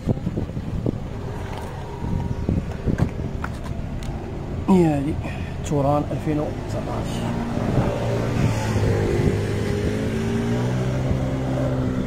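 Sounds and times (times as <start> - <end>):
car engine idling: 0.0 - 7.8.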